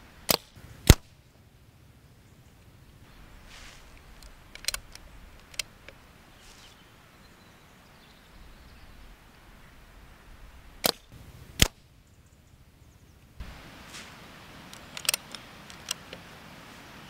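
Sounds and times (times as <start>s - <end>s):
air rifle shots: 0.2s - 1.2s, 10.8s - 11.8s
light mechanical clicks: 3.9s - 6.0s, 14.7s - 16.3s.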